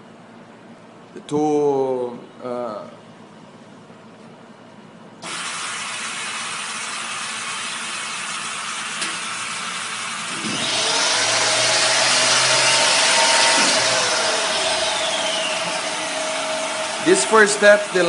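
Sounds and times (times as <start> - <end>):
motor whine: 5.2 - 18.0.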